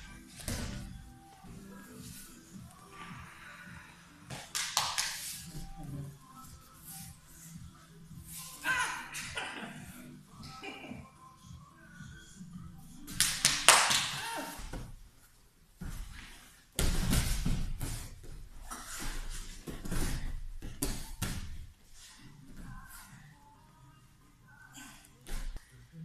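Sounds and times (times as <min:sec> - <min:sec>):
bodies thudding on a mat: 0:15.8 - 0:21.7.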